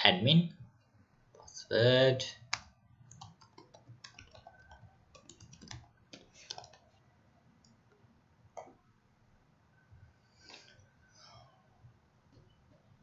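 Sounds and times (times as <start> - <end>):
computer keyboard typing: 2.4 - 7.0.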